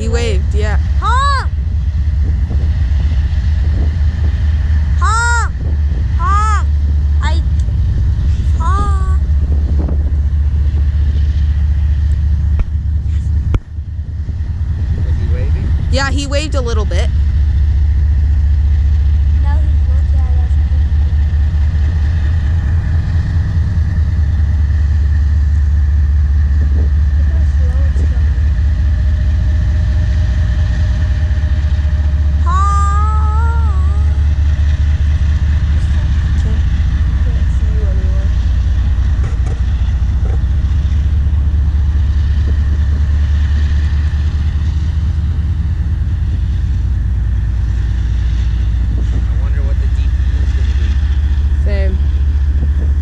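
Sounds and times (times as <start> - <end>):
diesel locomotive rumble: 0.0 - 53.0
wind buffeting microphone: 0.0 - 53.0.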